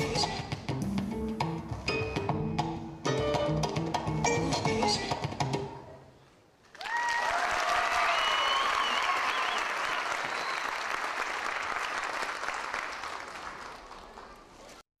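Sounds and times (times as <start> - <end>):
audience applauding: 6.6 - 14.7
high whoops: 6.7 - 11.0.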